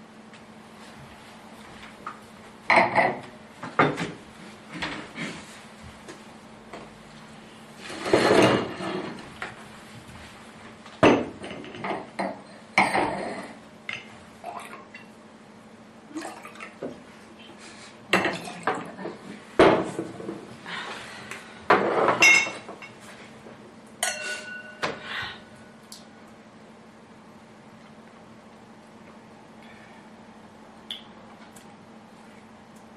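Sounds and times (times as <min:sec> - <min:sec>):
wine pouring: 0:16.1 - 0:16.8
glass ringing: 0:24.0 - 0:24.9
bottle and glasses clinking: 0:24.0 - 0:25.0.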